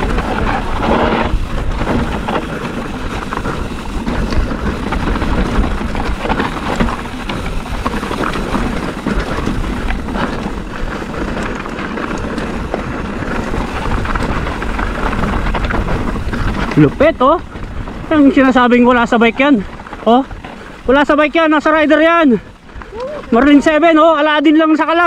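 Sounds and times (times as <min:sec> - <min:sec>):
tyres crunching over stones: 0:00.0 - 0:24.2
bike rattling clicks and knocks: 0:00.0 - 0:25.0
wind buffeting microphone: 0:00.0 - 0:25.0.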